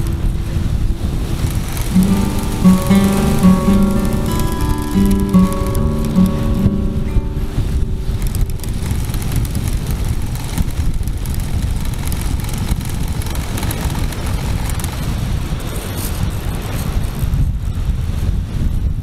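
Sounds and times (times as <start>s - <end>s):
airflow buffeting the microphone: 7.2s - 19.0s.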